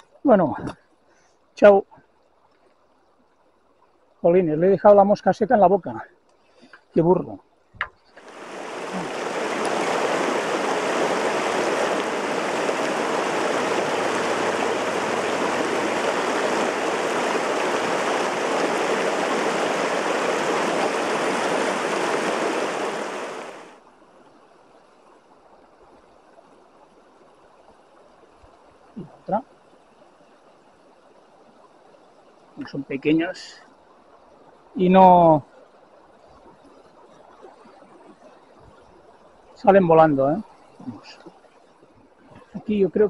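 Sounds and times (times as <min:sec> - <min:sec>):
river water rushing over rocks: 0:08.2 - 0:23.8.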